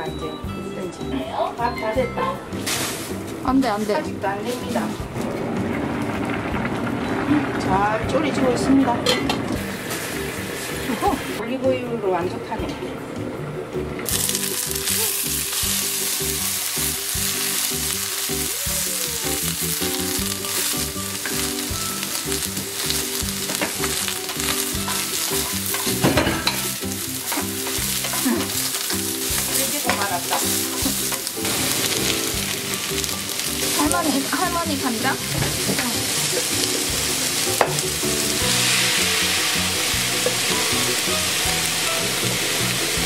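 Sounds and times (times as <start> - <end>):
eggplant sizzling in oil: 2.5 - 11.4, 14.0 - 43.0
spatula clattering in pan: 19.8 - 34.2.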